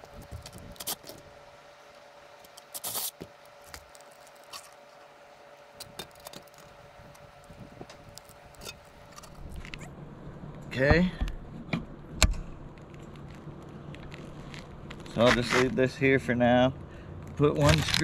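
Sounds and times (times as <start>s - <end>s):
short scraping hiss: 2.7s - 3.2s.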